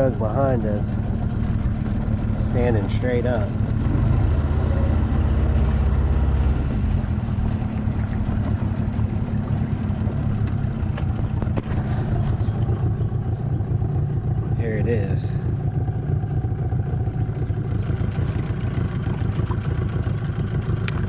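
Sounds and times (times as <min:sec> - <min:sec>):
outboard motor droning: 0:00.0 - 0:21.0
wind and water rushing: 0:02.1 - 0:12.9.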